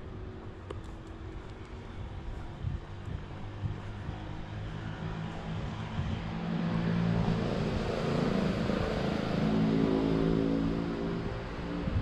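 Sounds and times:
vehicle engine driving by: 2.6s - 12.0s.

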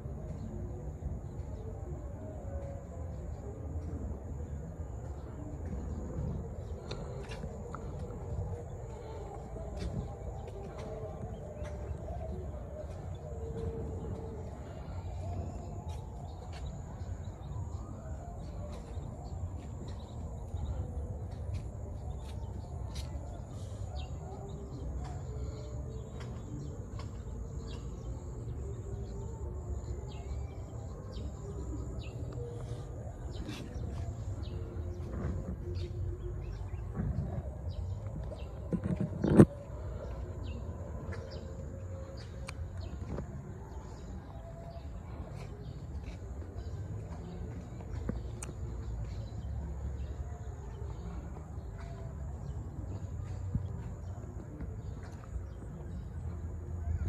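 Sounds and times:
constant low rumble: 0.0s - 57.0s.

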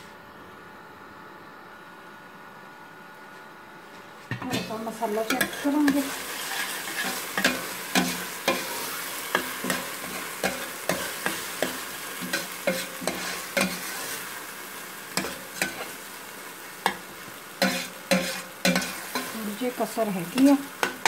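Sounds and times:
spices sizzling in a pot: 4.3s - 21.0s
metal spoon scraping a pot: 4.5s - 14.2s, 17.6s - 19.4s.

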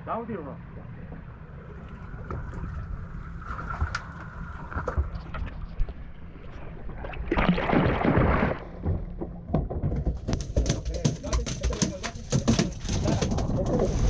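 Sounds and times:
rushing splash: 7.1s - 8.7s.

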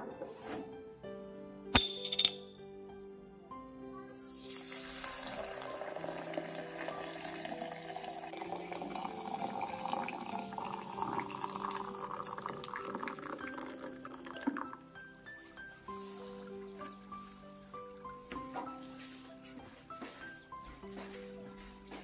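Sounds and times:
water pouring into glass: 4.4s - 18.2s.

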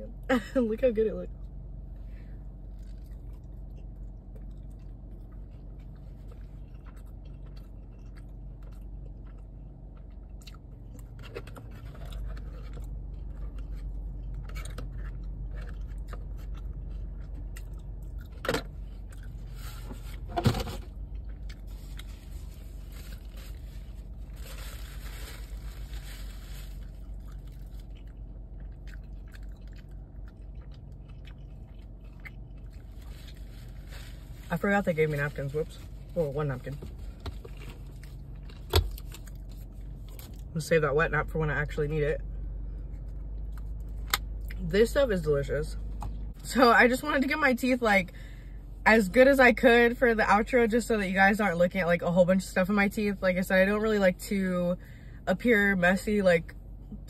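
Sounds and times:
chewing food: 2.7s - 19.6s, 26.9s - 33.6s.

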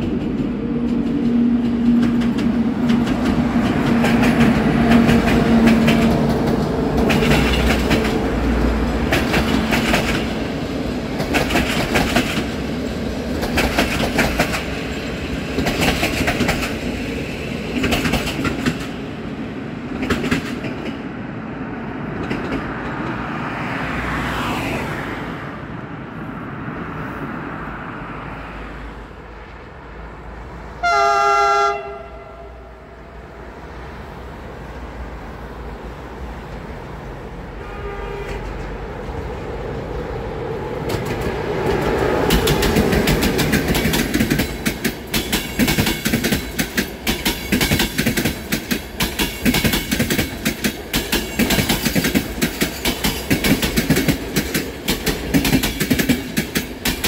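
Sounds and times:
train wheels clicking over rail joints: 0.0s - 19.2s, 19.9s - 21.0s, 22.1s - 23.3s, 40.7s - 57.0s
low train hum: 0.0s - 57.0s
train horn blast: 30.8s - 33.2s, 37.6s - 38.8s.

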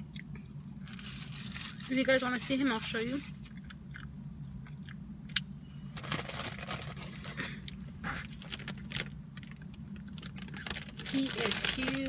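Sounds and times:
steady low hum: 0.0s - 12.0s
plastic bag crinkling: 6.0s - 7.4s, 8.1s - 12.0s.

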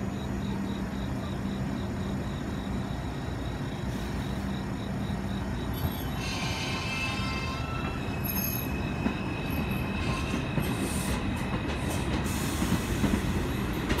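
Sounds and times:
train wheels rumbling on rails: 0.0s - 14.0s
faint high wheel squeal: 3.8s - 13.8s.

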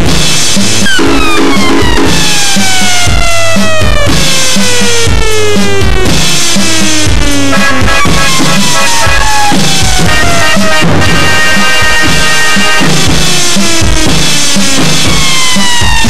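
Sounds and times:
fast drum kit beat: 0.0s - 16.0s
downward sliding synth tones: 7.5s - 13.8s.

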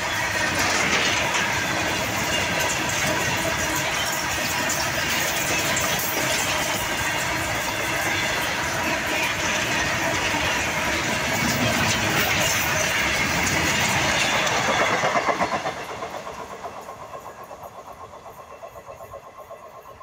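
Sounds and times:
freight train wheels on rails: 0.0s - 20.0s.

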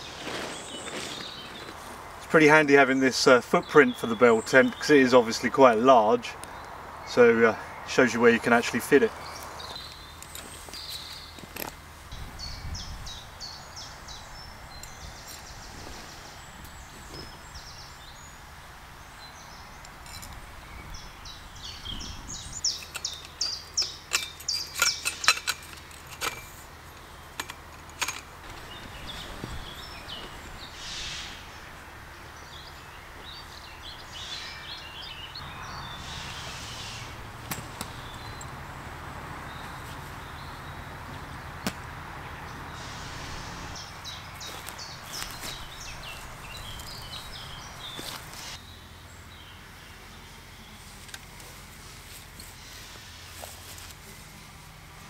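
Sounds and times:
birds chirping: 0.0s - 54.8s
outdoor background hiss: 0.0s - 55.0s
tent pole clicks and knocks: 37.4s - 38.2s.

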